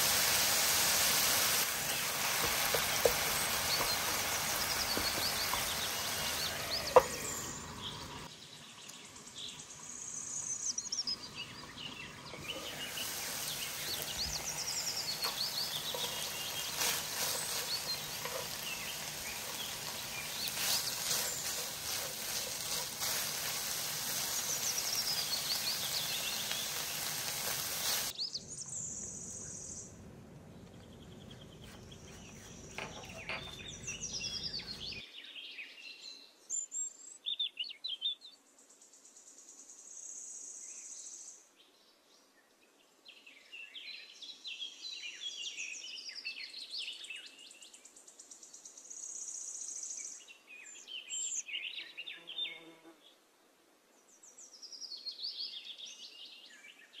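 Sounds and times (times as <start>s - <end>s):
loud steady hiss: 0.0s - 8.3s, 12.3s - 28.2s
small birds chirping: 0.0s - 52.7s.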